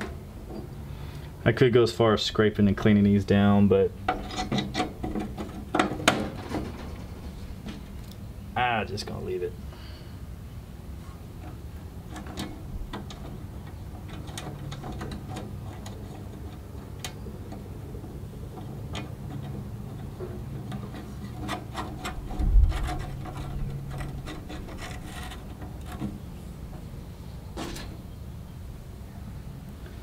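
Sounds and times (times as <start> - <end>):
small metallic clicks and rubbing: 18.5 - 26.9.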